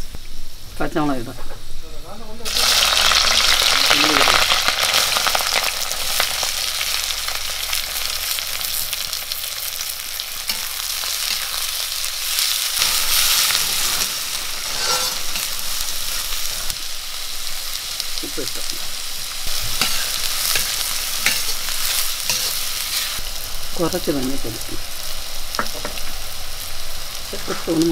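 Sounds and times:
onions sizzling in hot oil: 0.0 - 27.9
metal spatula scraping pan: 12.9 - 15.9, 19.6 - 23.2.

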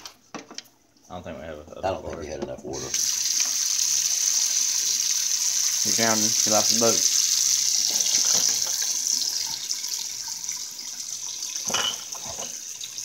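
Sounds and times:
tap water hissing into sink: 2.8 - 13.0.

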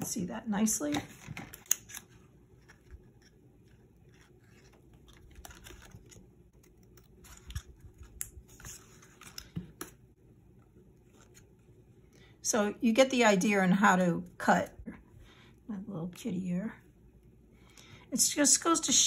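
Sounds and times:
paper rustling: 1.0 - 10.0.

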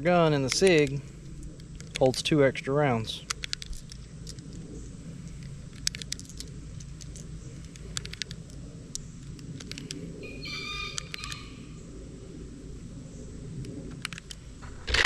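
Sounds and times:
cartridges clicking into magazine: 3.3 - 4.4.

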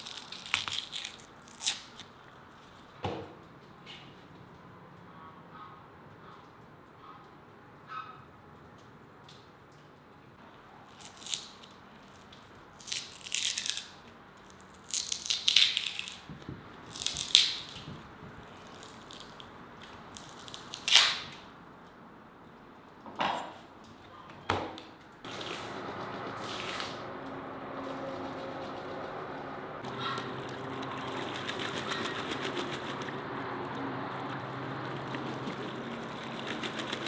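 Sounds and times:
membrane tearing off ribs: 0.0 - 2.1
steady background noise: 0.0 - 37.0.

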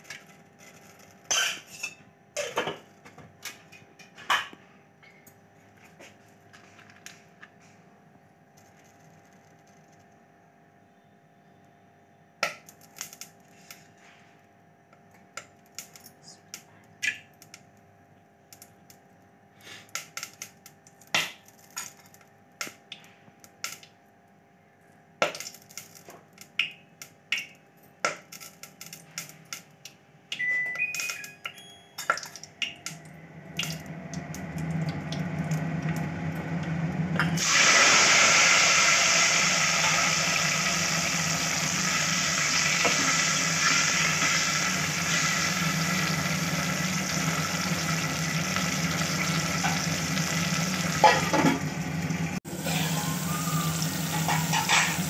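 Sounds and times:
hot oil popping and crackling: 25.2 - 30.0, 37.3 - 52.4, 53.0 - 55.0
tomatoes sizzling in hot oil: 37.4 - 55.0.

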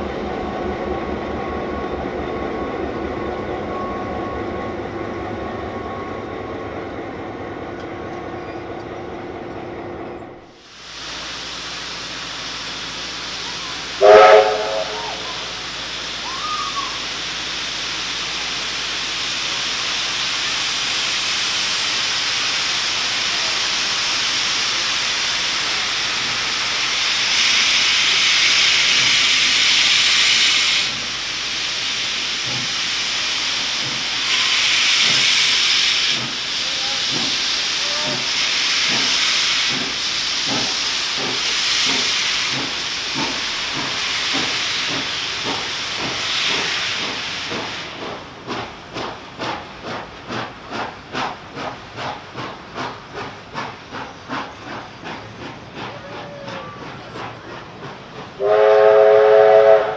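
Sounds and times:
steam hissing: 10.4 - 59.9
steam locomotive whistle blast: 14.0 - 15.6, 34.2 - 35.6, 58.4 - 59.9.

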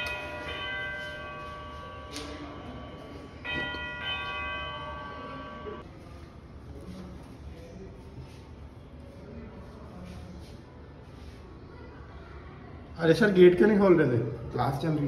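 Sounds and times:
electronic doorbell chime: 0.0 - 5.8.

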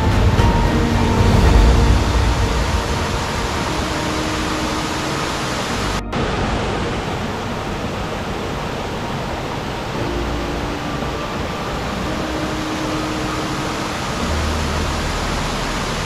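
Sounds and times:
stream water flowing: 0.0 - 16.0.

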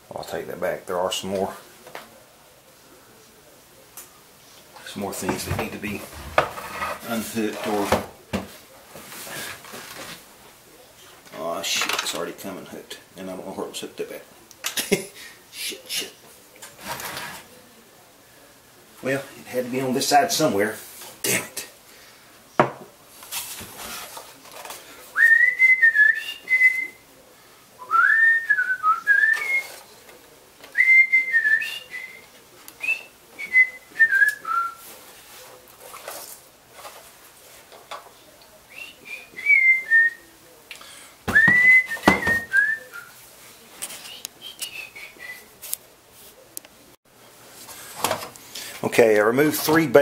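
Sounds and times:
person whistling a tune: 27.8 - 29.7.

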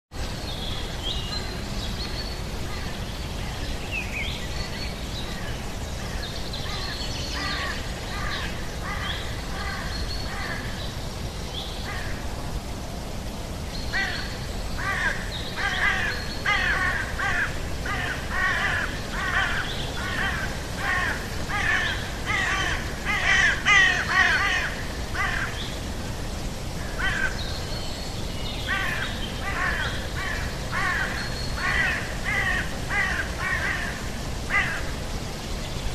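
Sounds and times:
steady background hiss: 0.1 - 35.9
repeated bird calls: 13.8 - 25.9.

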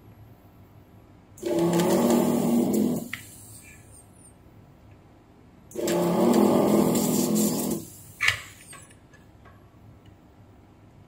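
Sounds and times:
desoldering gun vacuum pump: 1.4 - 3.8, 5.7 - 8.7.

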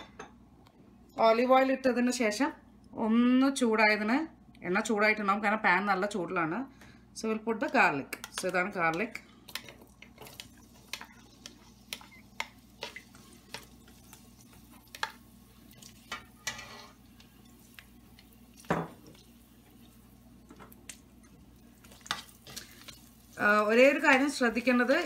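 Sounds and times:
spatula scraping and tapping bowl: 7.7 - 19.2.

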